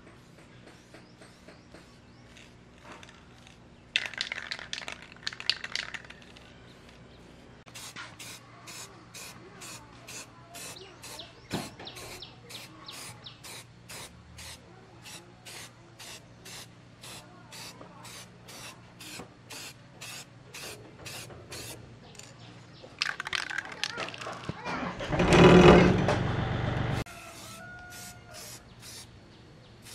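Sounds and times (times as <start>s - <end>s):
spray can short bursts: 7.7s - 21.8s, 27.3s - 29.1s
rattling or rubbing: 23.0s - 26.3s.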